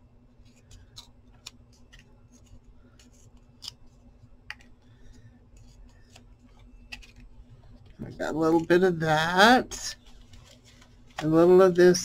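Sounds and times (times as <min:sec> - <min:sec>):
playing card tearing: 0:00.6 - 0:03.9.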